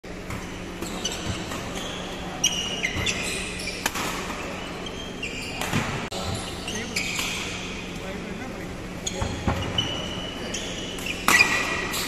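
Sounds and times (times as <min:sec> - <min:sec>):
shoes squeaking on court floor: 0:00.1 - 0:07.7, 0:08.9 - 0:12.0
rackets striking shuttlecock: 0:03.8 - 0:04.4.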